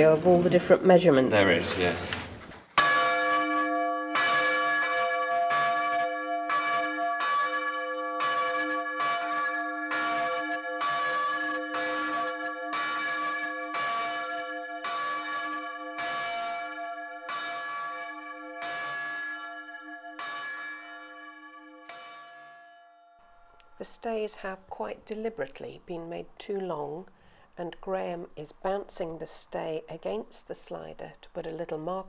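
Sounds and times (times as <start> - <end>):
church bell ringing: 2.8 - 24.2.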